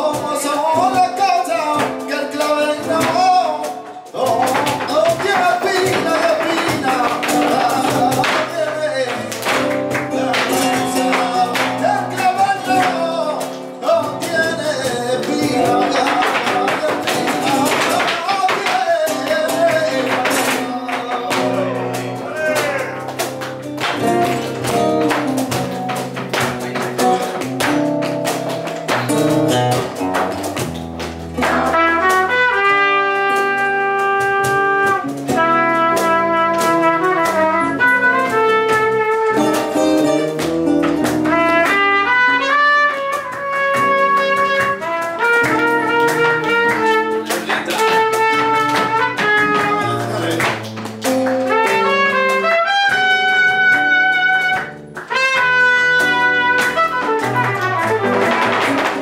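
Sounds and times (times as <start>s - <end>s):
flamenco jazz ensemble playing: 0.0s - 59.0s
guitars: 0.0s - 59.0s
trumpet long notes: 31.8s - 39.3s, 41.3s - 47.0s, 51.5s - 58.3s.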